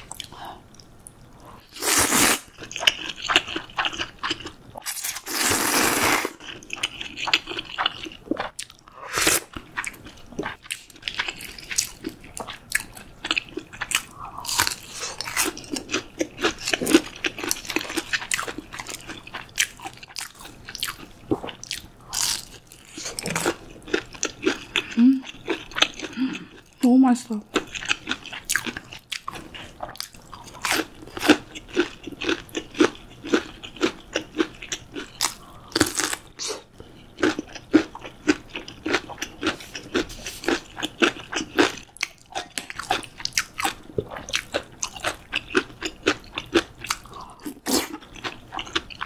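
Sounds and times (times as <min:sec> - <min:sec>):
crunchy bites and chewing: 0:01.8 - 0:26.1, 0:27.6 - 0:36.6
slurping noodles: 0:05.2 - 0:06.4.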